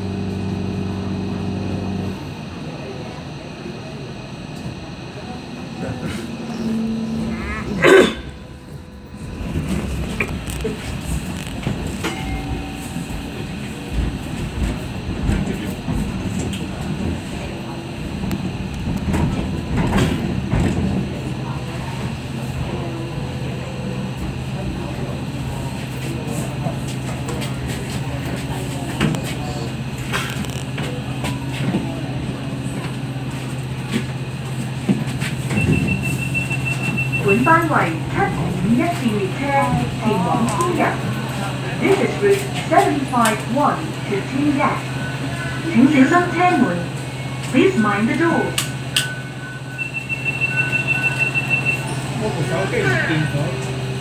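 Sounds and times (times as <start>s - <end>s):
train wheels rumbling on rails: 0.0s - 54.0s
brief held tone: 48.6s - 52.0s
steady high beep: 48.9s - 51.9s.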